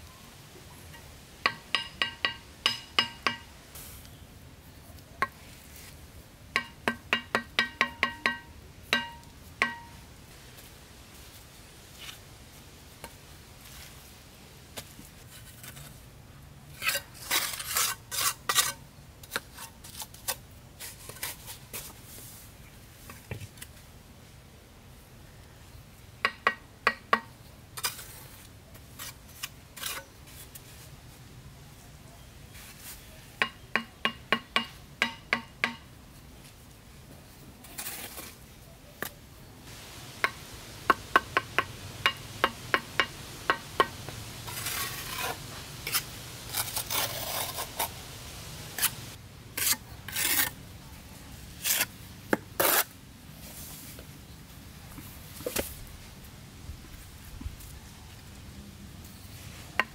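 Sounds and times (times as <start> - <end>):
hand tools knocking and ringing: 1.5 - 3.5, 6.6 - 10.0.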